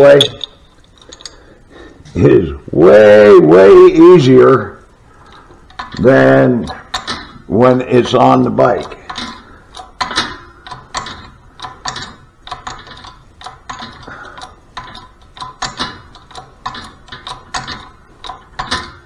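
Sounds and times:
press metallic clicks and ticks: 5.2 - 19.0.

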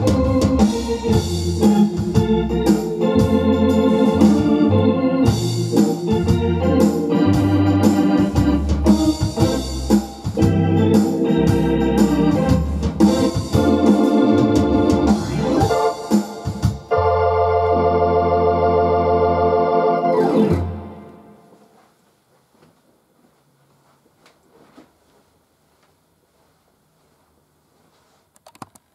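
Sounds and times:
steady percussion beat: 0.0 - 17.0
organ playing fox-trot: 0.0 - 21.6.

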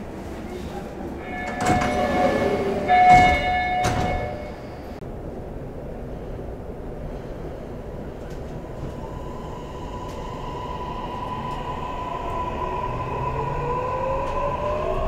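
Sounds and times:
train running noise: 0.0 - 15.0
steady high tone: 1.2 - 5.0.

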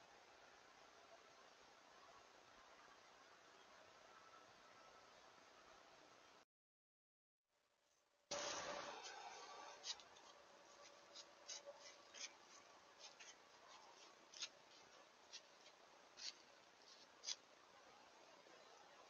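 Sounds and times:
faint steady hiss: 7.7 - 19.0.

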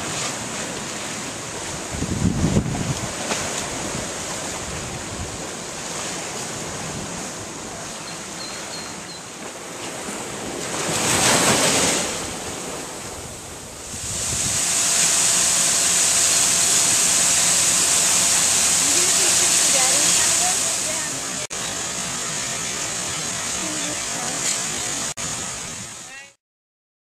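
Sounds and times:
sea waves washing against wall: 0.0 - 26.3
wind on microphone: 1.6 - 7.9, 10.0 - 20.5, 24.7 - 26.2
fountain water jets falling: 13.9 - 26.3.

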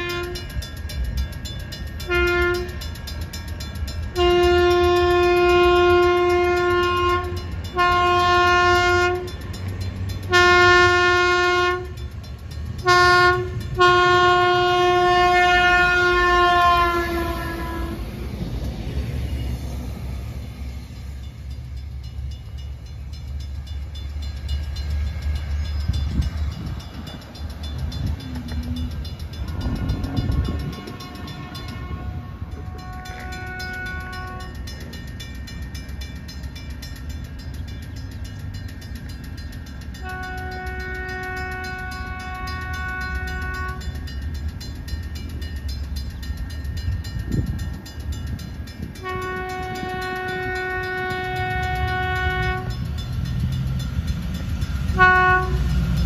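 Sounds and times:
train horn blasts: 0.0 - 0.5, 2.0 - 2.8, 4.1 - 9.4, 10.3 - 12.0, 12.8 - 18.1, 29.5 - 34.8, 40.0 - 44.1, 48.8 - 52.9, 54.8 - 56.0
train low rumble: 0.0 - 56.0.

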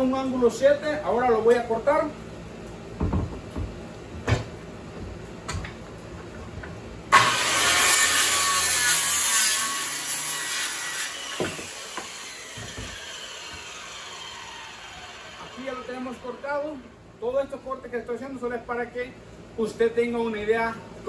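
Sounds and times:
boards knocking: 3.0 - 4.5
circular saw cutting wood: 7.1 - 16.8.

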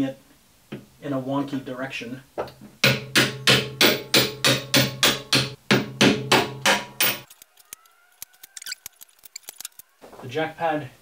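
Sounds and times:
hammer striking metal bolt: 2.8 - 7.3
faint clicks: 7.3 - 9.9.

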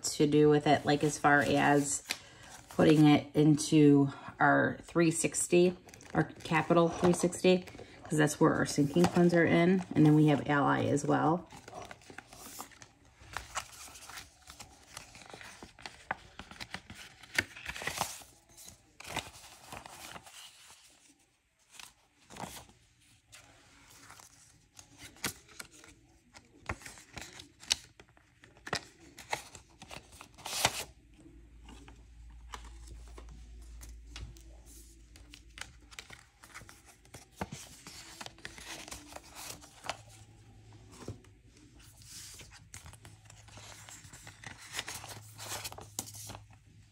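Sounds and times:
paper rustling and crinkling: 11.4 - 46.9.

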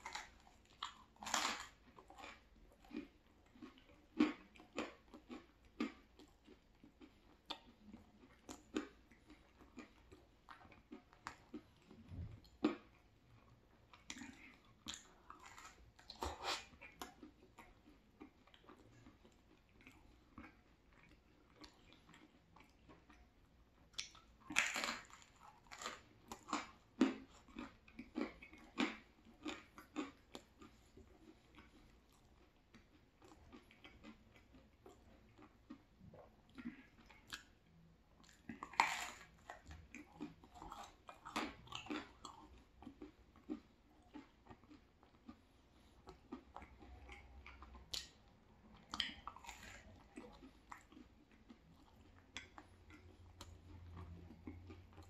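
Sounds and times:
chewing crispy pizza crust: 0.0 - 55.0
crunching bites: 24.0 - 30.6
wet mouth clicks: 46.6 - 48.2.

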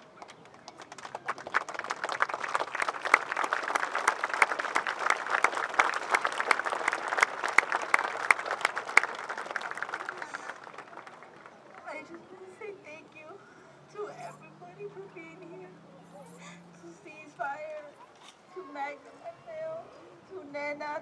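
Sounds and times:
crowd applauding: 0.0 - 12.4.

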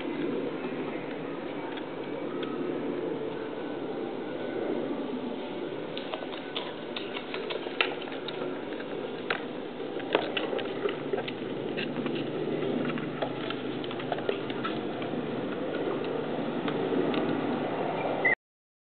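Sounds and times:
steady background noise: 0.0 - 18.4
puppy claws clicking on wood floor: 5.9 - 16.2.

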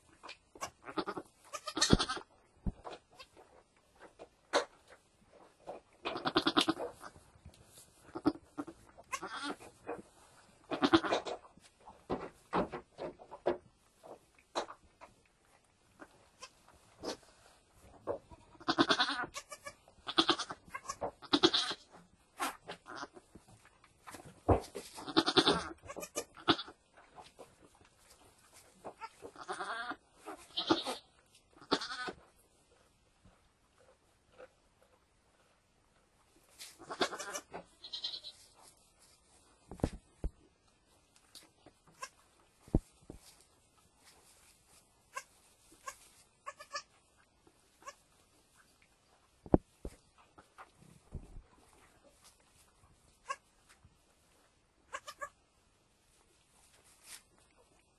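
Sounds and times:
goat bleating: 0.6 - 2.3, 6.1 - 7.2, 8.1 - 9.6, 10.7 - 11.2, 18.2 - 21.9, 22.8 - 23.2, 24.9 - 26.8, 29.0 - 32.2, 36.8 - 38.4, 41.9 - 42.2, 45.1 - 47.0, 53.2 - 53.5, 54.9 - 55.4
soft knocks and rustles: 9.6 - 15.2, 22.4 - 26.2, 38.5 - 40.5, 49.4 - 52.5
clicks and rustles in straw: 22.4 - 25.2, 36.4 - 37.0, 41.0 - 46.4, 56.5 - 57.9.

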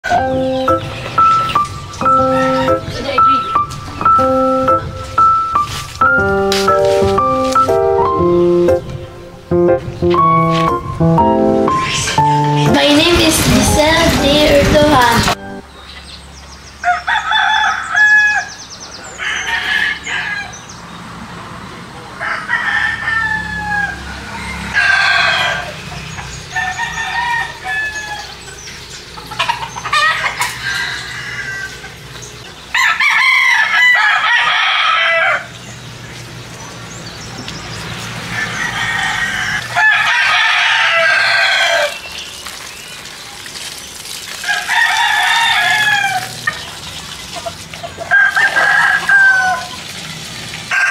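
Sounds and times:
roosters crowing: 0.0 - 3.2, 16.8 - 20.9, 22.1 - 35.8, 37.9 - 42.1, 44.4 - 46.8, 47.4 - 50.0, 50.6 - 50.9.

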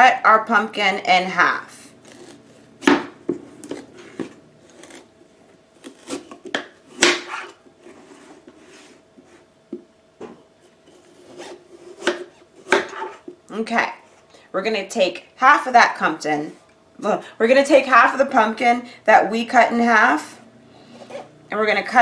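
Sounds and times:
knife cutting through pumpkin: 2.0 - 2.7, 3.6 - 5.1, 5.8 - 8.3, 10.9 - 13.3.

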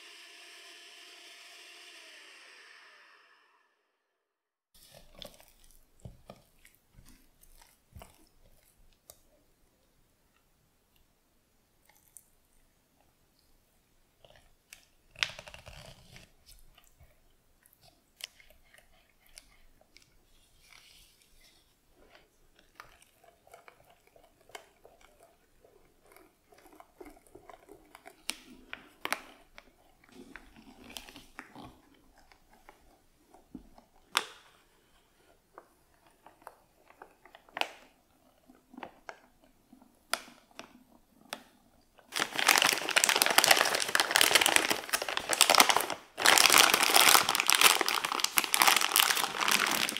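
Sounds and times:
plastic piping bag crinkling: 42.0 - 49.9.

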